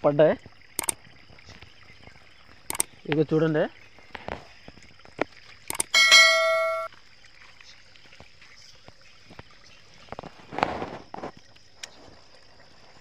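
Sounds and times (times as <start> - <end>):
notification bell ding: 5.9 - 6.9.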